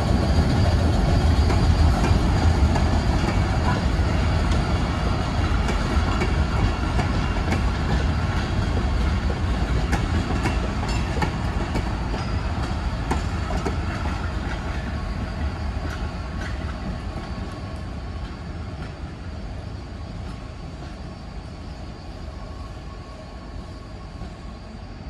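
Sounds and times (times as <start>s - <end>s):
train wheels rumbling: 0.0s - 25.0s
wheels clicking over rail joints: 0.6s - 14.9s.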